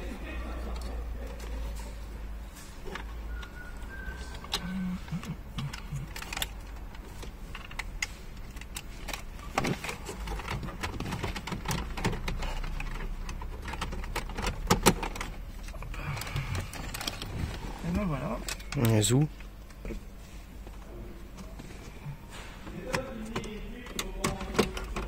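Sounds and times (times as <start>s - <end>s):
plastic clicks and knocks: 22.7s - 25.0s.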